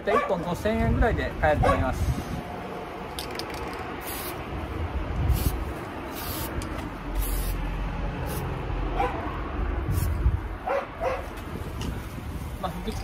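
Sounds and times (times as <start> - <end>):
spray paint can hissing: 3.2 - 4.5, 5.2 - 8.5, 9.9 - 10.2.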